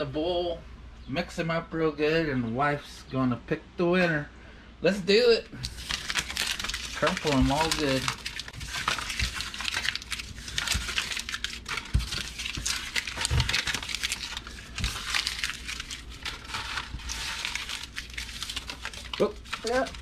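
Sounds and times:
paper crumpling: 5.6 - 20.0.

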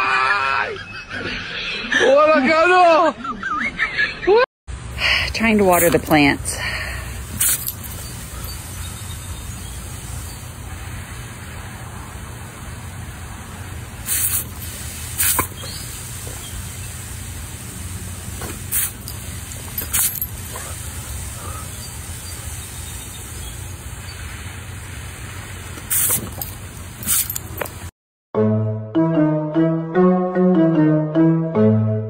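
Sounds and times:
water spraying from hose nozzle: 5.0 - 27.9
sharp noise bursts: 5.4 - 27.7.

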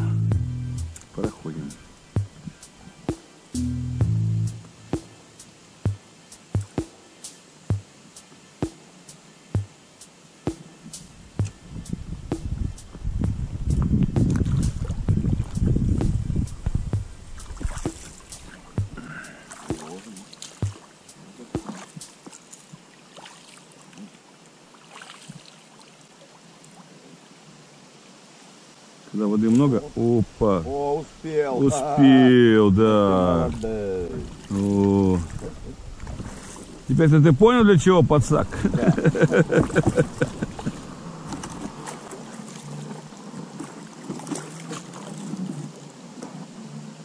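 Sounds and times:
faint water sounds: 0.0 - 3.6, 4.3 - 47.0
light splashes: 19.4 - 26.0, 33.5 - 36.9, 38.7 - 45.7.

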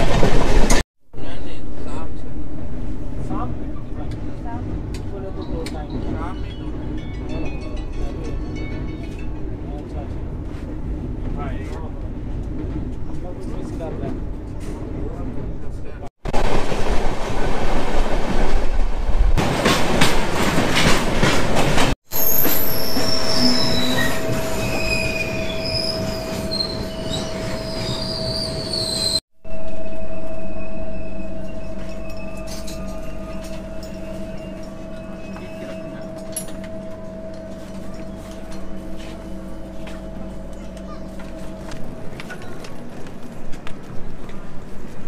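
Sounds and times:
steady train hum: 0.0 - 45.0
train rattle and clatter: 0.0 - 45.0
train wheel squeals: 5.2 - 7.6, 22.1 - 41.6.

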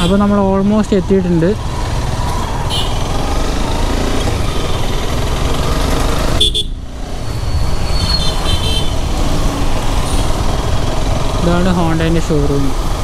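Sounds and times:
motorcycle engine rumble: 0.0 - 13.0
vehicle horn toot: 6.4 - 6.8, 8.0 - 9.0.

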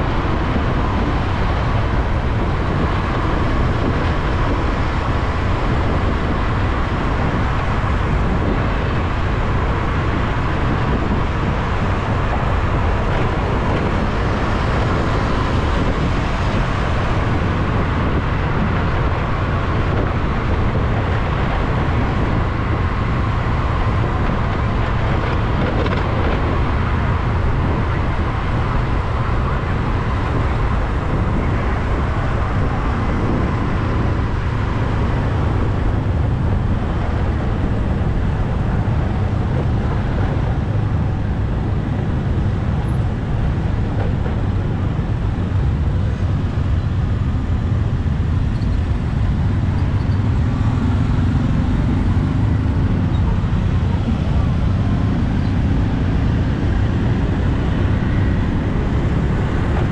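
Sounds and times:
street traffic rumble: 0.0 - 59.9.

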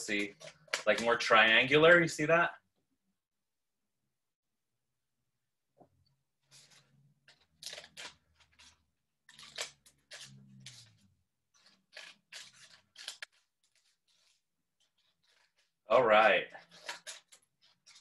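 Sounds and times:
scissors snipping paper: 0.0 - 2.1, 6.5 - 15.8, 16.5 - 18.0.

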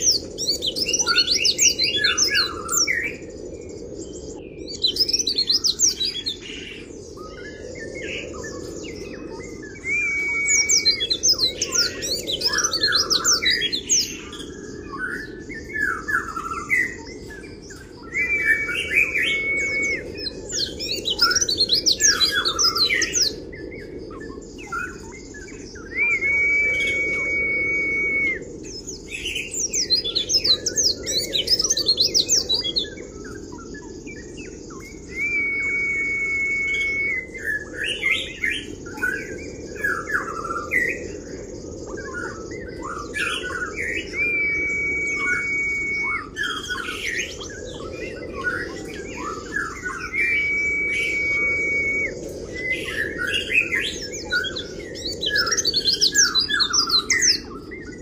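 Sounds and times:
bird twittering: 4.7 - 23.4, 24.1 - 41.0, 42.1 - 58.0
steady held whistle: 9.8 - 13.5, 18.1 - 20.3, 25.8 - 28.5, 34.8 - 37.7, 43.9 - 46.9, 49.8 - 52.8.

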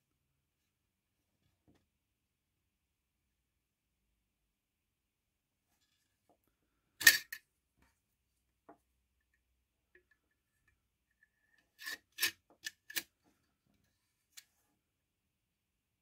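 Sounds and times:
blade scraping in metal scabbard: 11.7 - 13.0.

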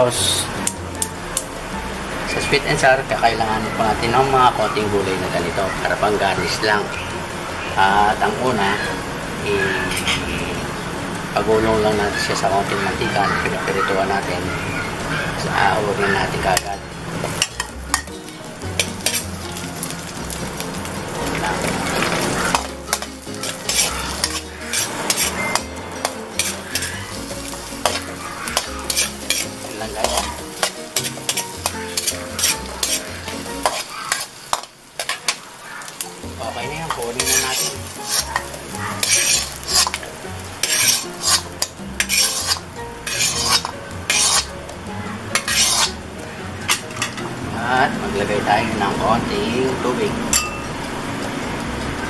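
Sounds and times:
light sizzle: 0.0 - 52.0
metal spatula scraping a wok: 9.6 - 10.6, 16.1 - 36.2, 36.9 - 46.0, 46.6 - 47.3.

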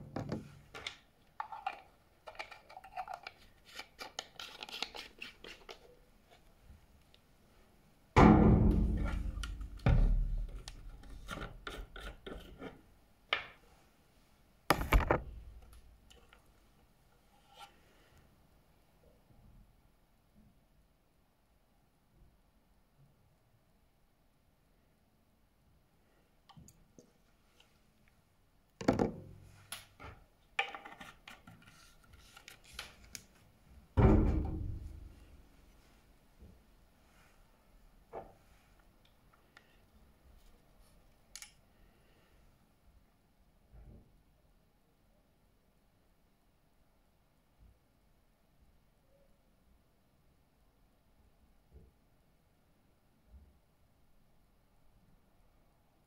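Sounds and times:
small clicks and scrapes: 0.8 - 7.2, 10.6 - 12.8
loud thud: 8.2 - 9.0.

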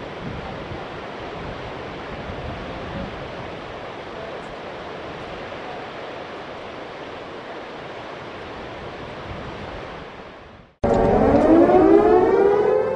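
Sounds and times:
siren winding up: 10.8 - 12.9.

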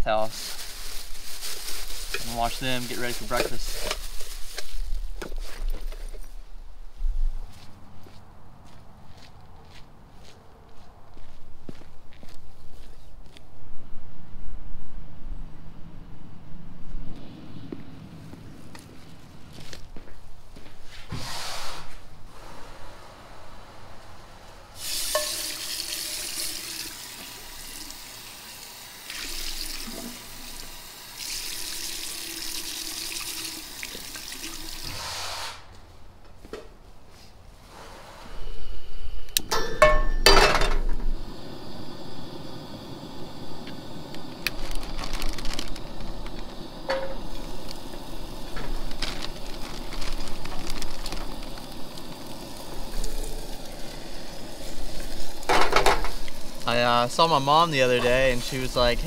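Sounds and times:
steady hiss: 0.0 - 5.2, 20.8 - 35.9, 37.6 - 59.0
footsteps: 0.2 - 13.5, 16.8 - 21.3, 34.8 - 37.6
water running from sink tap: 24.8 - 34.9.

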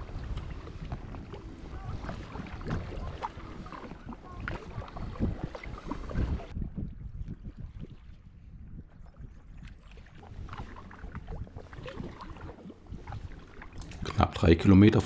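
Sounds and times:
water splashing and dripping: 0.0 - 6.6, 9.5 - 14.2
paddle dipping into water: 0.0 - 14.3
wind rumble on microphone: 0.0 - 14.4.

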